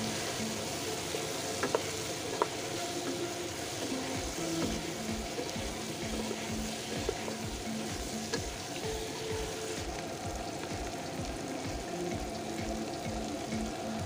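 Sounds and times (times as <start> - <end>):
wooden spatula stirring: 0.0 - 10.9
beef sizzling in a pot: 0.0 - 14.0.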